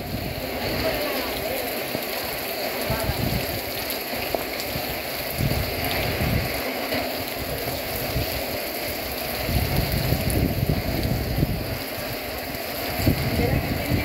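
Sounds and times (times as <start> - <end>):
heavy rain falling: 0.0 - 14.0
wind buffeting microphone: 2.9 - 3.8, 4.7 - 6.6, 7.3 - 14.0.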